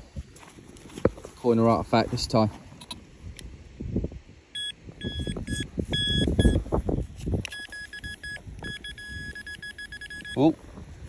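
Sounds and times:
soil scraping and rustling: 0:00.0 - 0:02.8, 0:06.7 - 0:08.0
metal detector pinpointer beeping: 0:04.6 - 0:06.6, 0:07.4 - 0:10.4.

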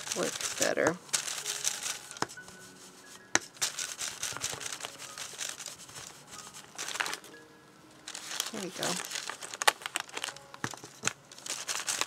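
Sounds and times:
paper and stencil rustling: 0:00.0 - 0:07.3, 0:08.1 - 0:12.0
brush tapping on paper: 0:02.1 - 0:02.5, 0:03.3 - 0:06.2.

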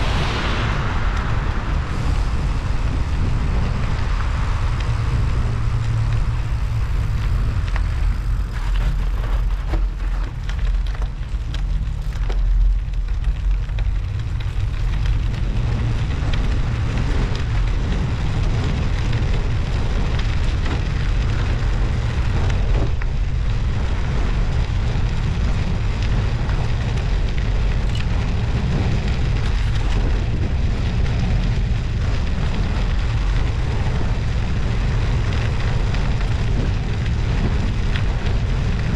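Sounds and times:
tyres crackling on snow and ice: 0:00.0 - 0:38.9
wind rumble on microphone: 0:00.0 - 0:38.9.

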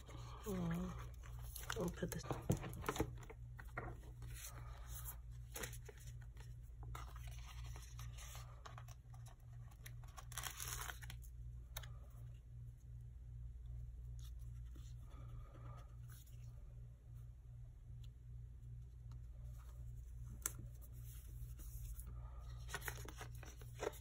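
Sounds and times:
faint low hum: 0:00.0 - 0:24.0
paper sticker sheets rustling: 0:20.0 - 0:24.0.

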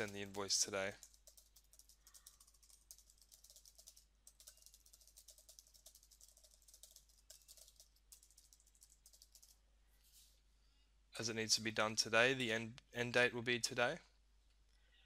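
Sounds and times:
faint keyboard typing: 0:00.0 - 0:09.6.

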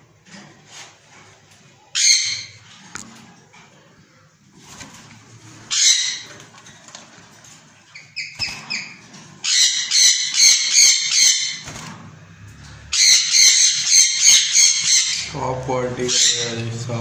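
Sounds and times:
harsh parakeet screeches: 0:01.9 - 0:02.6, 0:05.6 - 0:06.4, 0:08.0 - 0:11.6, 0:12.9 - 0:15.4, 0:16.0 - 0:16.6
parakeets squawking: 0:01.9 - 0:02.7, 0:05.4 - 0:06.6, 0:07.9 - 0:11.8, 0:12.6 - 0:17.0.

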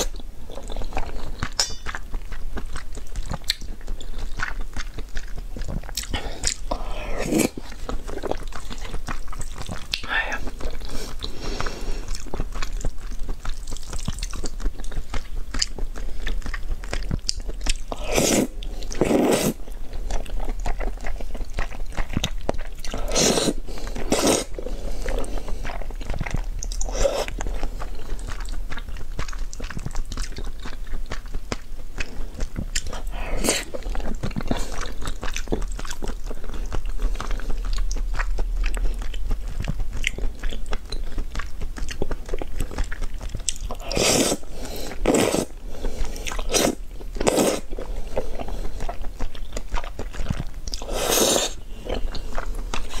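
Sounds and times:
wet chewing: 0:00.0 - 0:53.0
slurping noodles: 0:05.9 - 0:09.5, 0:17.9 - 0:19.6, 0:22.8 - 0:28.5, 0:32.8 - 0:37.7, 0:43.4 - 0:49.1, 0:50.1 - 0:53.0.

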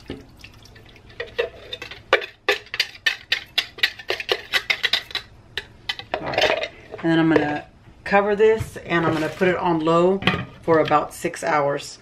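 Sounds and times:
liquid splashing and dripping: 0:00.0 - 0:01.2.

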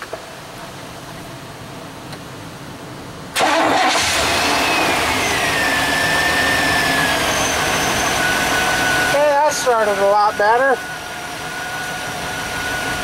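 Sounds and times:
alternator whine: 0:00.0 - 0:13.0
truck engine starting and idling: 0:03.2 - 0:13.0.

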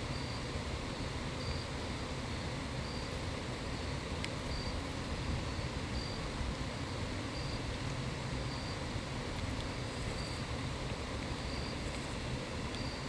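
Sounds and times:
insect chirping: 0:00.0 - 0:02.1, 0:02.8 - 0:03.2, 0:04.4 - 0:07.7, 0:08.4 - 0:08.9, 0:09.8 - 0:10.6, 0:11.3 - 0:13.0.

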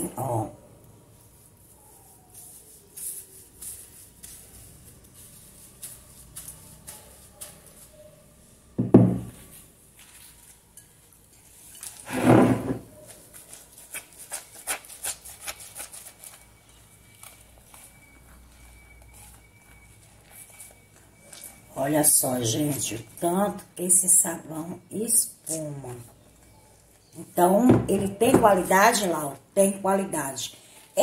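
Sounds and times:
soap rubbed on wet sponge: 0:01.3 - 0:07.2.

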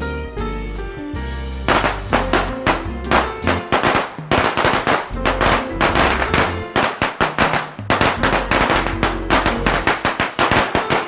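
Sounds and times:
background music: 0:00.0 - 0:11.0
firecrackers popping: 0:01.7 - 0:11.0.

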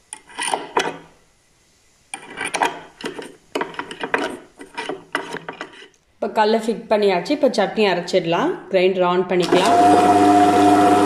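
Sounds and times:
stone roller scraping in drum: 0:02.1 - 0:06.0.

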